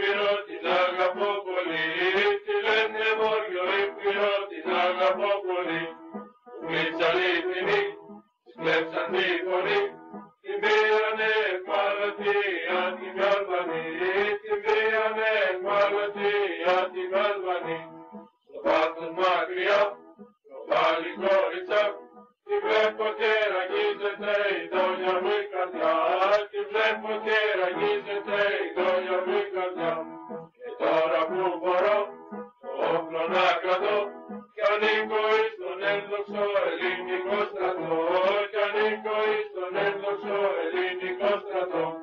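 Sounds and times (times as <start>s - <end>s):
men singing chant-like song: 0.0s - 6.0s, 6.6s - 8.0s, 8.6s - 9.9s, 10.5s - 17.9s, 18.5s - 22.0s, 22.6s - 30.0s, 30.6s - 32.1s, 32.7s - 42.0s.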